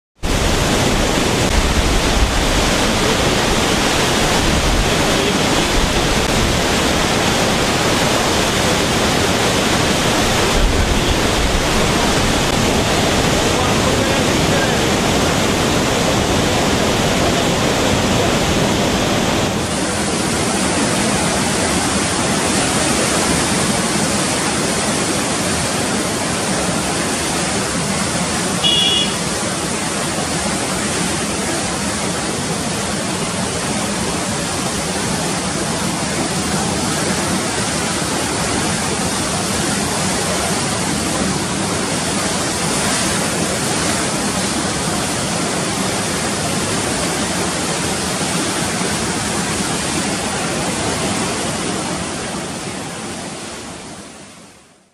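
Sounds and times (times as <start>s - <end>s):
floodwater rushing: 0.2s - 54.9s
high-pitched tone: 28.6s - 29.2s.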